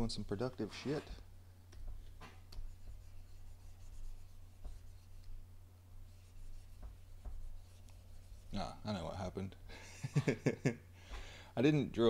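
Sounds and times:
drawing on touchscreen: 2.0s - 5.4s, 6.0s - 8.7s.

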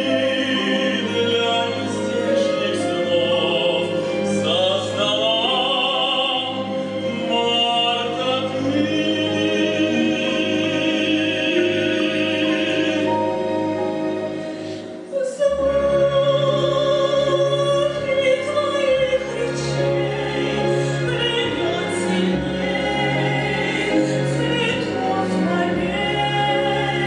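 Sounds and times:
orchestra playing: 0.0s - 27.0s
woman singing operatically: 15.1s - 27.0s.

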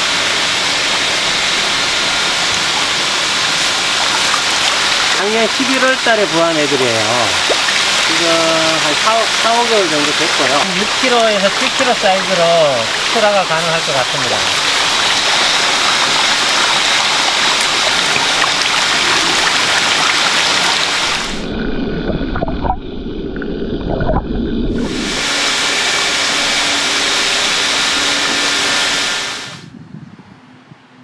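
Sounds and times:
water rushing and splashing: 0.0s - 29.7s
muffled underwater rumble: 17.8s - 27.6s.

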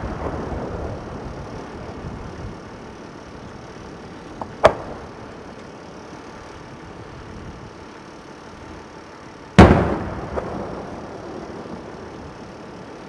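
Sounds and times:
firework sharp report: 0.0s - 2.8s, 4.4s - 5.4s, 9.5s - 12.9s
wind noise: 0.0s - 5.0s, 6.6s - 7.8s
firework shell bursting with bang: 9.6s - 11.0s.

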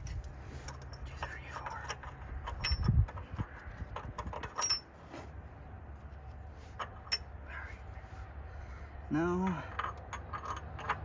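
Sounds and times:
metal clicks and clinks: 0.0s - 3.2s, 4.0s - 4.9s, 9.6s - 11.0s.

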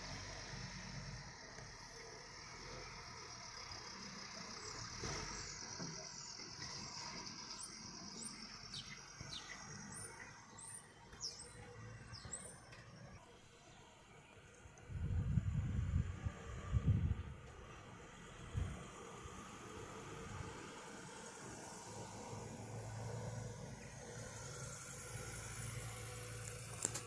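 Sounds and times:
faint truck engine: 0.0s - 27.0s
birds chirping: 4.1s - 14.8s.

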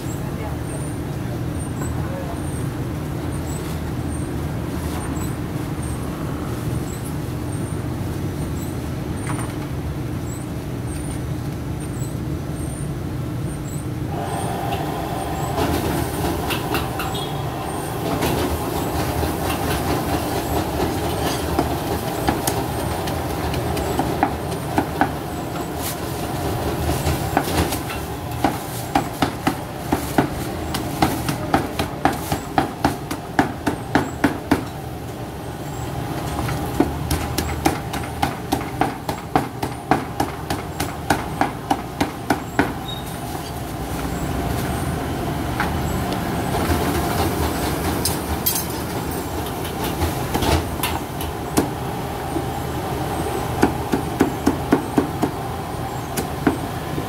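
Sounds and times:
street traffic rumble: 0.0s - 57.0s
steady hum: 13.0s - 30.8s.

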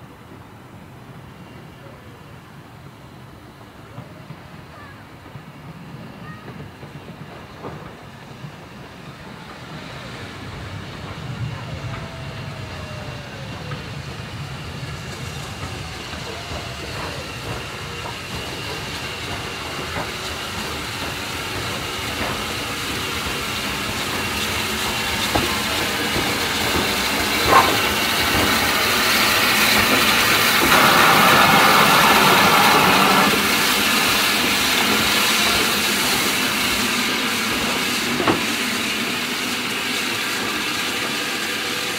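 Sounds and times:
steam hiss: 0.0s - 41.9s
train wheels rumbling on rails: 0.0s - 41.9s.

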